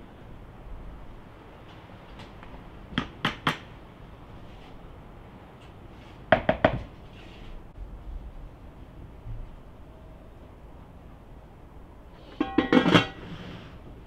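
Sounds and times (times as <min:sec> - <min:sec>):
knocks on metal bucket: 0:12.4 - 0:13.2.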